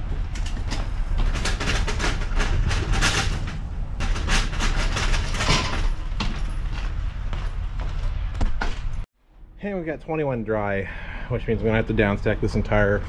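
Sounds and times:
hand truck rattling over metal ramp: 0.3s - 6.6s.

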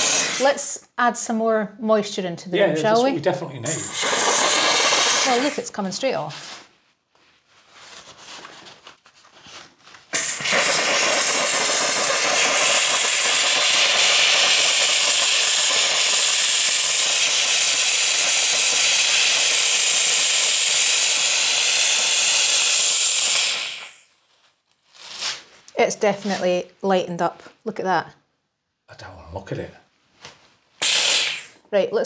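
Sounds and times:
steam cleaner hissing: 0.0s - 0.7s, 3.7s - 5.7s, 10.1s - 24.1s, 30.8s - 31.6s.

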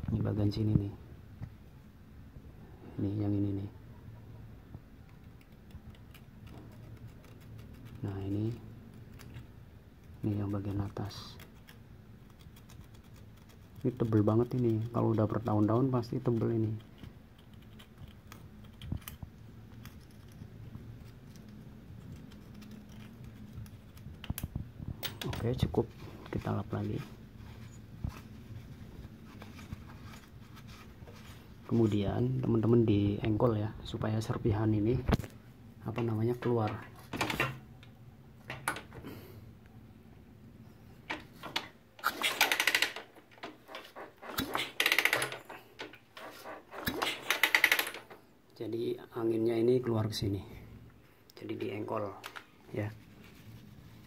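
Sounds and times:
faint low hum: 0.0s - 42.1s
screwdriver scraping metal: 42.0s - 48.0s.

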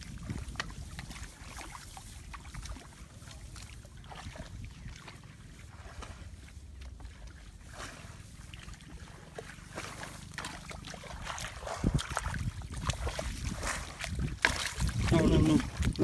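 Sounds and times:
wind buffeting microphone: 0.0s - 2.8s, 4.0s - 5.2s, 11.1s - 16.0s
feet moving through muddy water: 0.0s - 16.0s.

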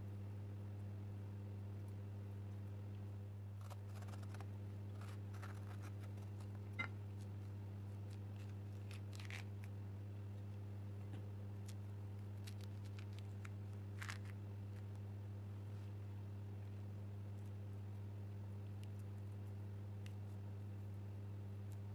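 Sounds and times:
low electrical hum: 0.0s - 21.9s
knife cutting and scraping peel: 3.6s - 6.6s, 7.2s - 9.7s.

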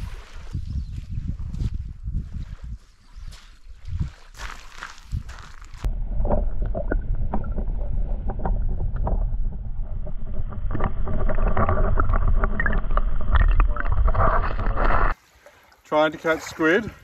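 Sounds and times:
underwater moving water rumble: 5.8s - 15.2s
underwater clicks and knocks: 5.9s - 15.2s.

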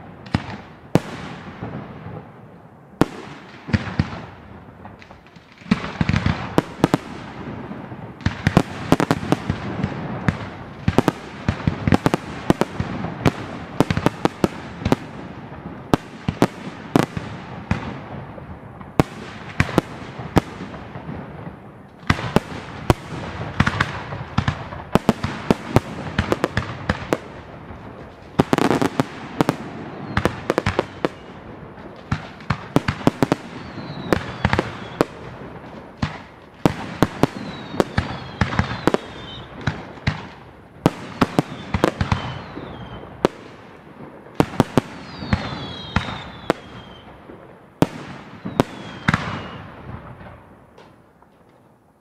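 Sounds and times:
fireworks bursting with bangs: 0.0s - 51.8s
falling firework whistles: 28.0s - 35.4s, 36.0s - 43.5s, 44.4s - 47.2s, 47.8s - 49.8s.

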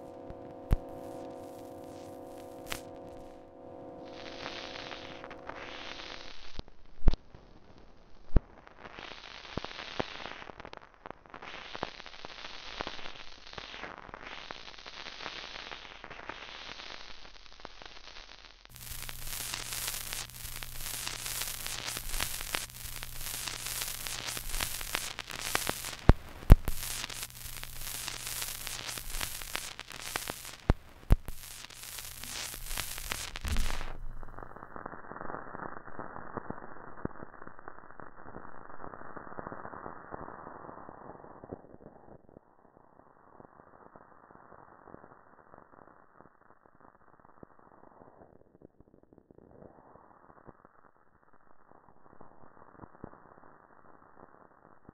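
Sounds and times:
record pops: 0.0s - 3.2s, 18.7s - 37.4s
low hum: 0.0s - 6.4s, 18.8s - 34.8s
record surface hiss and crackle: 0.0s - 54.9s.

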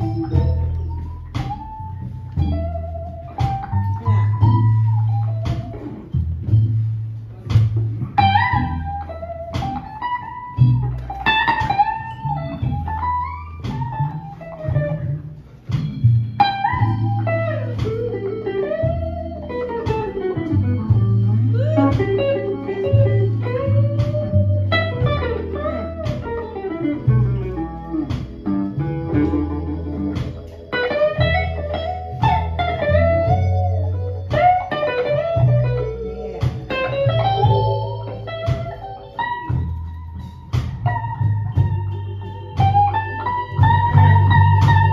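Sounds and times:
bass guitar: 0.0s - 44.9s
drums: 0.0s - 44.9s
electric guitar lead: 0.0s - 44.9s.

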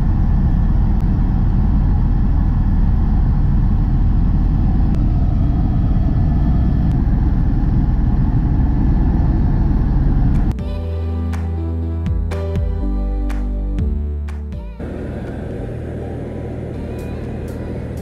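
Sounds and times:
helicopter engine and rotor noise: 0.0s - 10.5s, 14.8s - 18.0s.

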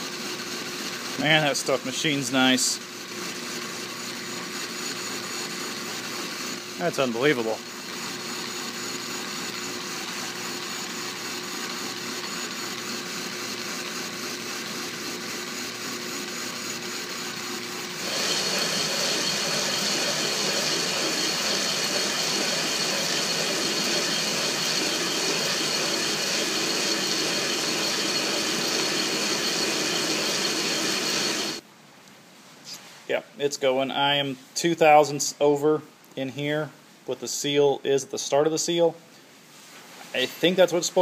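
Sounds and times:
metal lathe cutting with whine: 0.1s - 31.6s.

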